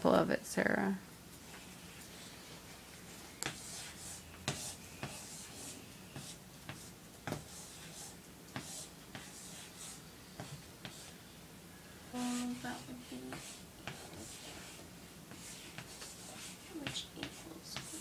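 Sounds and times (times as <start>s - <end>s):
chalk scratching on chalkboard: 3.4s - 11.1s, 12.2s - 18.0s.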